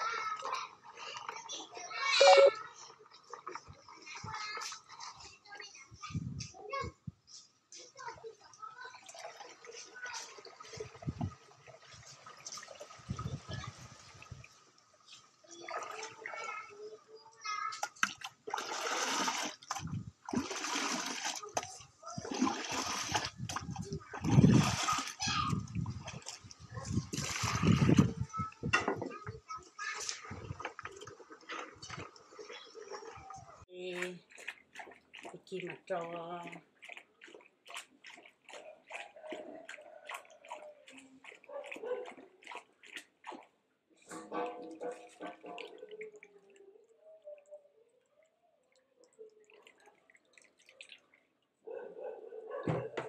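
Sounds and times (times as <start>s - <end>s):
liquid pouring into bucket: 8.9s - 16.8s, 17.7s - 29.3s, 29.9s - 46.4s.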